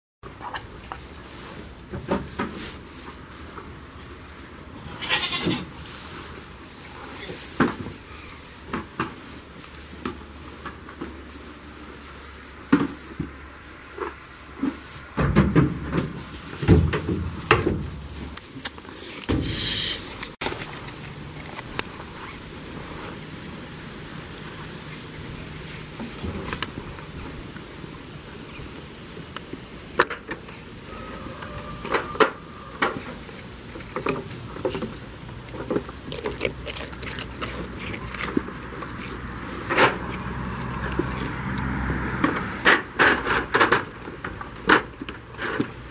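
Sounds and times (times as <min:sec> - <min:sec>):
goat hooves knocking on wooden boards: 0:15.1 - 0:18.4
goats crunching biscuits: 0:16.1 - 0:30.7, 0:32.9 - 0:45.9.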